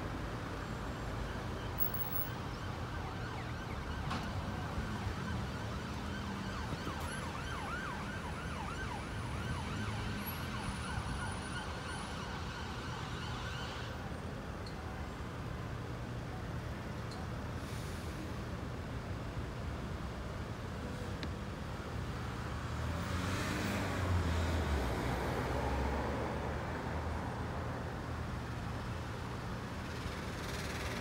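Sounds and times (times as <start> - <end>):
road traffic rumble: 0.0 - 31.0
emergency siren yelping: 1.3 - 14.0.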